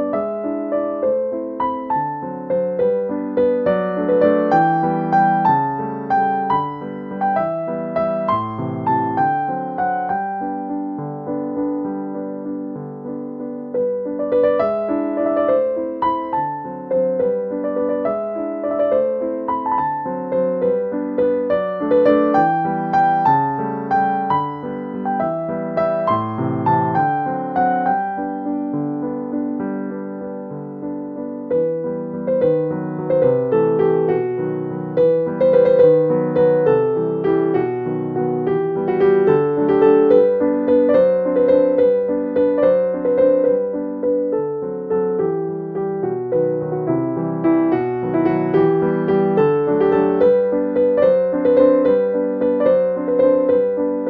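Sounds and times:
gentle piano melody: 0.0 - 54.0.

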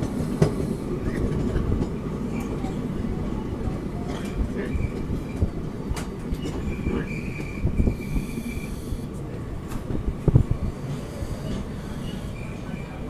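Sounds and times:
loud train clunks: 0.0 - 13.0
train rumbling with wheel knocks: 0.0 - 13.0
high brake squeal: 6.3 - 9.1, 11.0 - 13.0.

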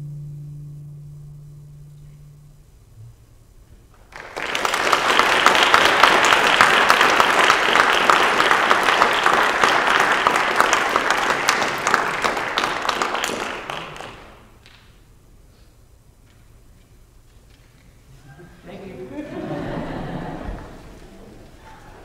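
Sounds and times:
audience applauding: 3.9 - 14.8, 19.3 - 22.0.

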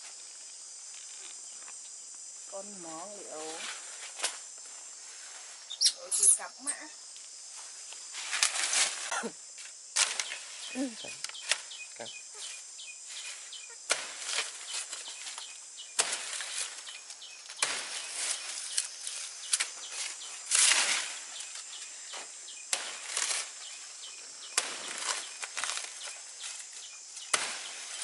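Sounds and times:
dry leaves rustling and crackling: 12.4 - 28.0.

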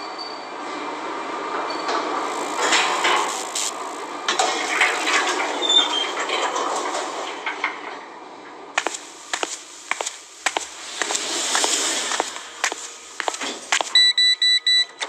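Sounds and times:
steady hiss: 2.0 - 4.7, 8.8 - 14.0
scraping: 8.8 - 13.9.

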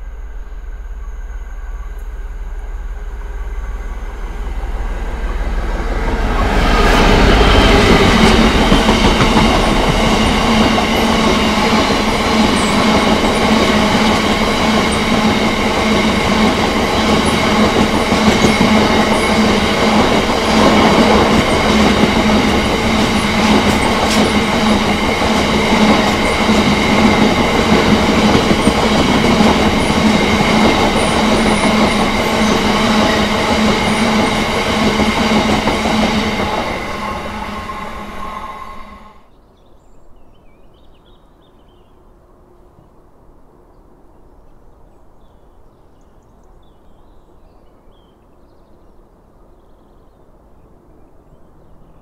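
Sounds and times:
freight train passing: 0.0 - 39.3.

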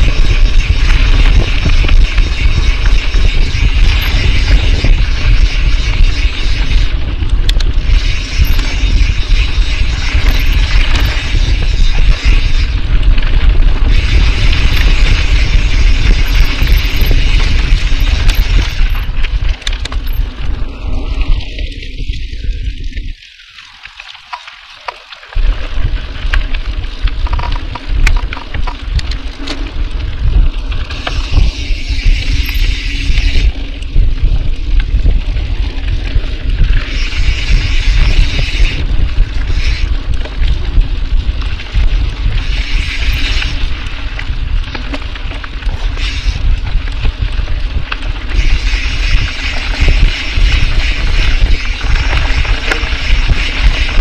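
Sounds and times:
freehub ratchet buzz: 0.0 - 20.5, 30.7 - 54.0
wind rumble on microphone: 0.0 - 23.3, 25.4 - 54.0
bike tyre noise: 0.0 - 54.0
sharp rattling clicks: 14.4 - 20.3.

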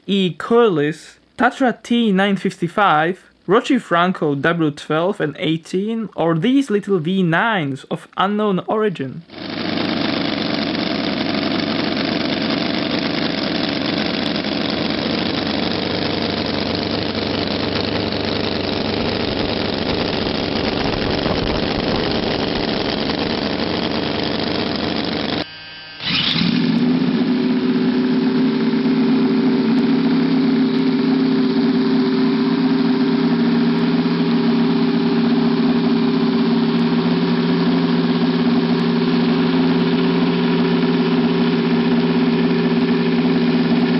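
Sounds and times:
model engine idling with even hum: 9.3 - 43.9
model engine running roughly: 9.3 - 43.9
rising whine of engine starting: 9.3 - 43.9.

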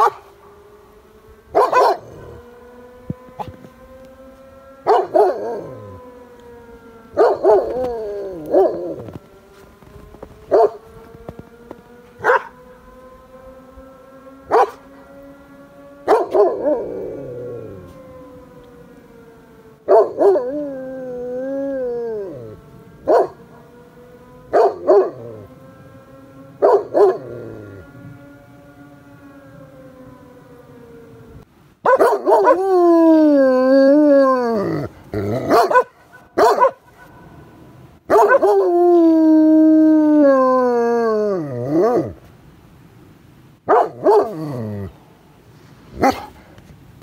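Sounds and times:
dog barking: 0.0 - 0.3, 1.6 - 2.1, 4.8 - 5.4, 7.2 - 7.7, 10.5 - 10.8, 12.2 - 12.6, 14.5 - 14.8, 16.1 - 16.6, 19.9 - 20.5, 23.1 - 23.4, 24.5 - 25.2, 26.6 - 27.2, 31.8 - 32.6, 35.4 - 37.1, 38.1 - 38.6, 43.7 - 44.4, 46.0 - 46.3
fire siren wailing: 0.0 - 46.5
dog howling: 1.5 - 2.5, 4.8 - 9.2, 12.2 - 12.6, 14.5 - 14.9, 16.0 - 18.6, 19.8 - 23.7, 24.4 - 25.6, 26.6 - 27.9, 31.9 - 36.8, 38.1 - 42.2, 43.7 - 45.0.

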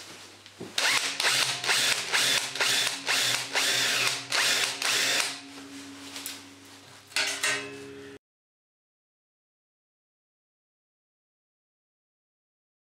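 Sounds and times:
drill bit grinding rivet: 0.8 - 5.4
drill motor hum: 0.8 - 5.4.

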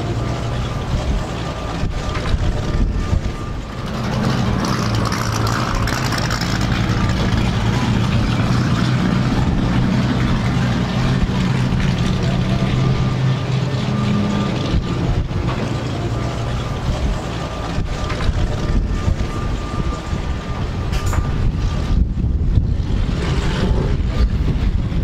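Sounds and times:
car engine idling: 0.0 - 22.5.

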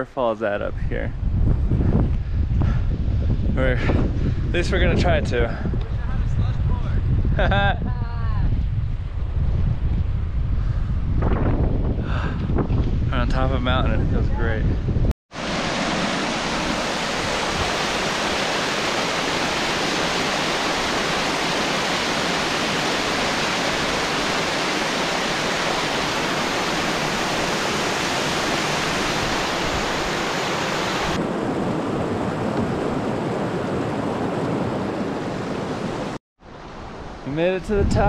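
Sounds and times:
waterfall rushing: 15.3 - 31.2.

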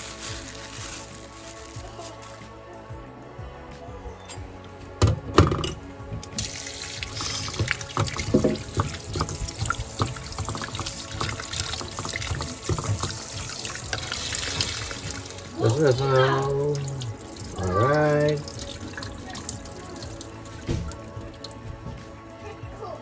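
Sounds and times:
hand rubbing tomatoes: 0.0 - 2.4
tap water splashing into sink: 6.2 - 22.0.

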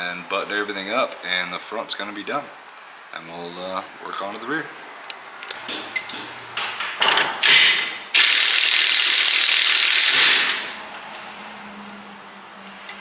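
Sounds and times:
impact wrench hammering: 5.7 - 10.8.

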